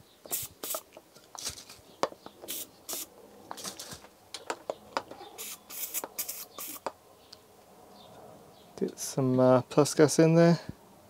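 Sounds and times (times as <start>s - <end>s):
aerosol can hissing: 0.3s - 0.9s, 2.5s - 3.1s, 5.4s - 6.9s
handling clicks and knocks: 3.5s - 5.3s.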